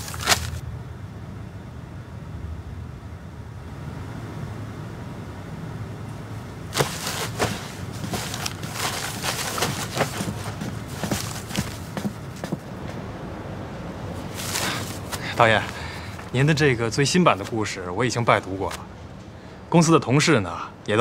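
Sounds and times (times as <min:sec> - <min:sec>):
low room hum: 0:00.0 - 0:21.0
footsteps on wooden floor: 0:06.8 - 0:13.0.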